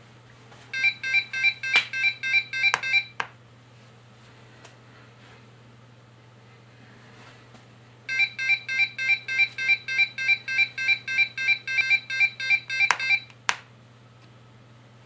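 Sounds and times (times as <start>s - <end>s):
alarm clock buzzer beeping: 0.8s - 3.2s, 8.1s - 13.3s
button clicks: 1.7s - 2.0s.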